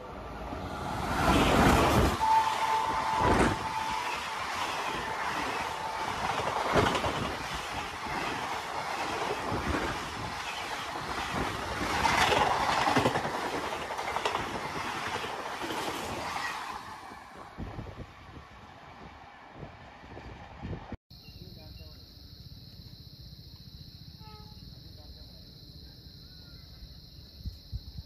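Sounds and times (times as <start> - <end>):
train coaches rushing past: 0.0 - 21.0.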